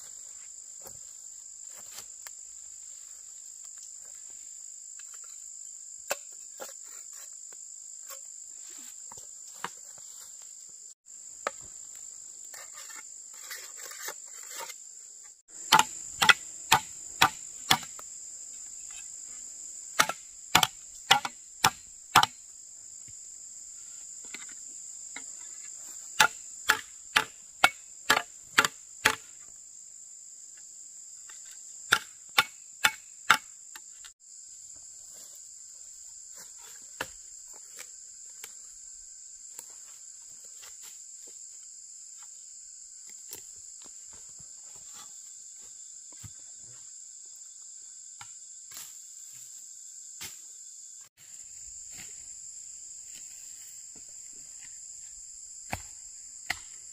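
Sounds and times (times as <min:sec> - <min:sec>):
high-pitched insect chorus: 0:00.0 - 0:56.9
chopping on wood: 0:15.7 - 0:18.0, 0:20.0 - 0:22.4, 0:26.2 - 0:29.3, 0:31.9 - 0:33.5, 0:55.6 - 0:56.8.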